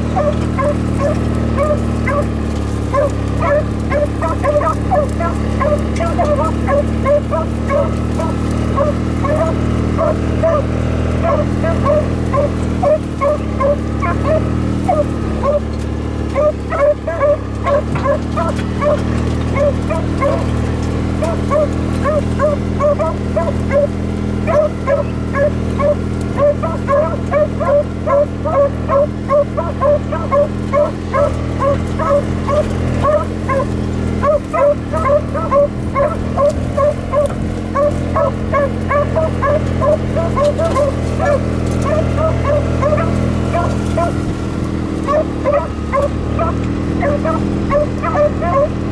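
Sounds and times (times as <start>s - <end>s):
dogs baying and barking: 0.0s - 48.9s
vehicle engine humming: 0.0s - 48.9s.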